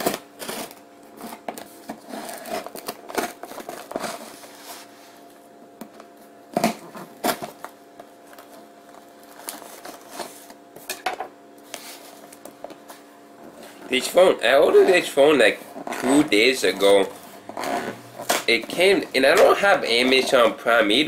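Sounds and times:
tape scraping and crackling: 0:00.0 - 0:04.9, 0:08.3 - 0:10.6, 0:15.7 - 0:20.5.

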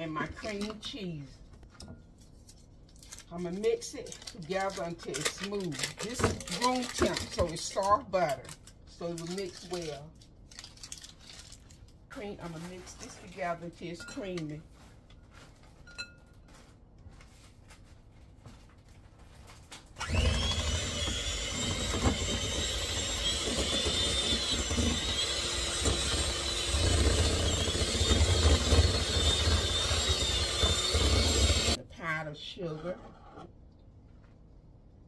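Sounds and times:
electric hand mixer whining: 0:20.0 - 0:31.8.

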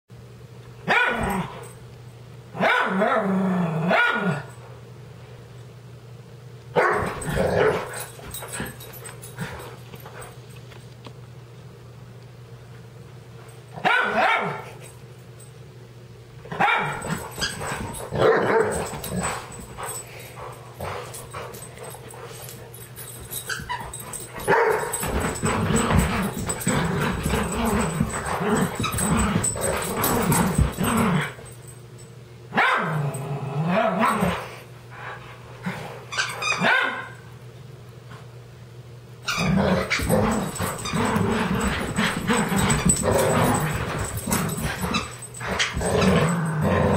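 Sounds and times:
dogs barking: 0:00.9 - 0:01.4, 0:02.6 - 0:03.2, 0:03.9 - 0:04.4, 0:06.8 - 0:08.8, 0:13.8 - 0:14.7, 0:16.5 - 0:19.9, 0:23.3 - 0:30.8, 0:32.5 - 0:33.0, 0:36.2 - 0:37.3
dogs growling: 0:07.0 - 0:09.6, 0:16.8 - 0:31.6, 0:39.3 - 0:46.9.

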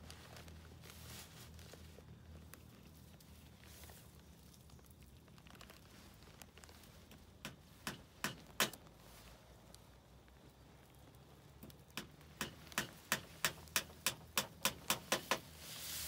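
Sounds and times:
sharp knocks on bamboo frame: 0:07.4 - 0:08.8, 0:12.0 - 0:15.4.

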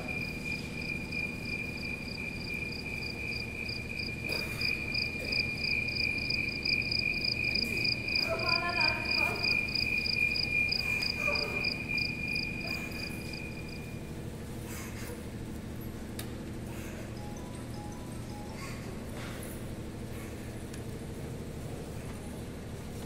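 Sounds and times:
cricket trilling: 0:00.0 - 0:15.1.

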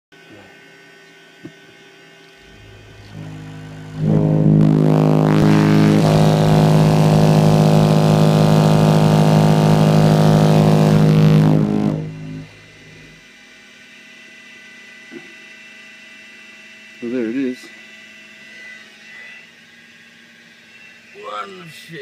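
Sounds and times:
subwoofer playing low bass tone: 0:02.4 - 0:13.2.

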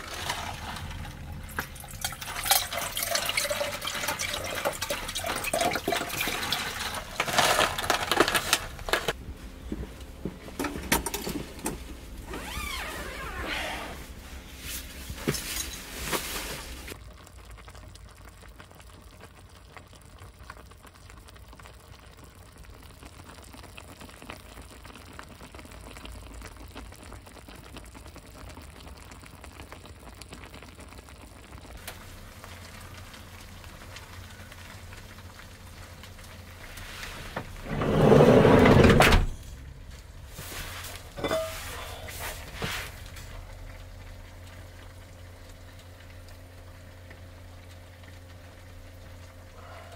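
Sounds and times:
stove fire crackling: 0:00.0 - 0:49.9
low steady hum: 0:31.7 - 0:49.9.

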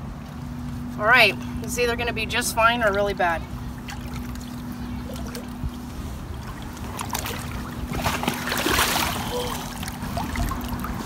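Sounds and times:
water splashing and sloshing: 0:02.6 - 0:11.0.

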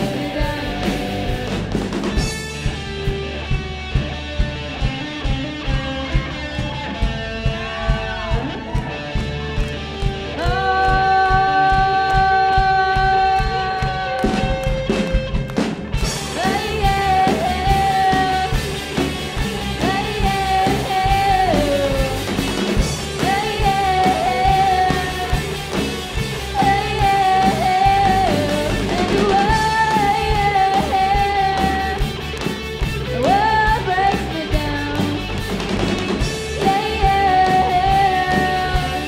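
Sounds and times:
girl singing lead vocal: 0:00.0 - 0:01.7, 0:10.3 - 0:14.7, 0:16.2 - 0:25.6, 0:26.3 - 0:32.2, 0:33.0 - 0:35.4, 0:36.4 - 0:39.0
live rock band playing: 0:00.0 - 0:39.0.

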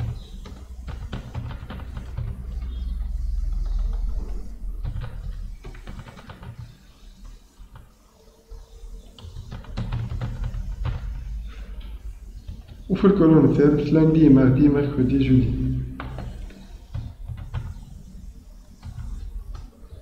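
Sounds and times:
computer keyboard keystrokes: 0:00.0 - 0:02.8, 0:03.5 - 0:07.9, 0:09.2 - 0:11.2.

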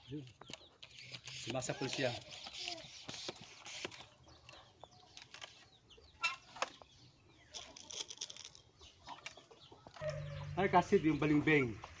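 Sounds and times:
chicken clucking: 0:08.8 - 0:10.6.

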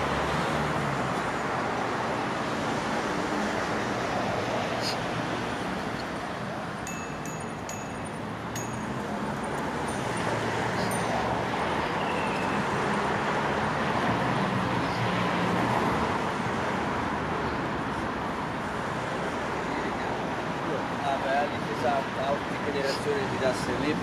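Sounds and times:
engine hum: 0:00.0 - 0:20.9
passing cars: 0:00.0 - 0:24.0.

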